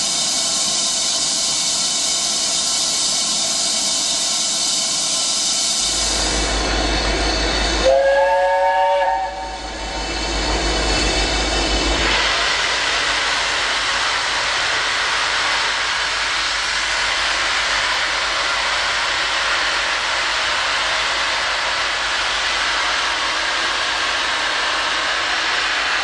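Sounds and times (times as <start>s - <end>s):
steam locomotive hissing steam: 0.0s - 26.0s.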